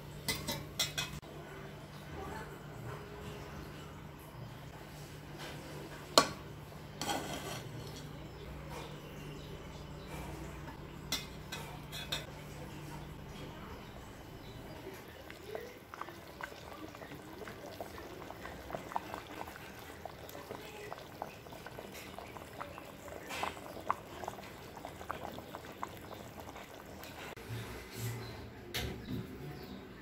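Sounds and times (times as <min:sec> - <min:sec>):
thick curry bubbling and popping: 0:13.9 - 0:27.4.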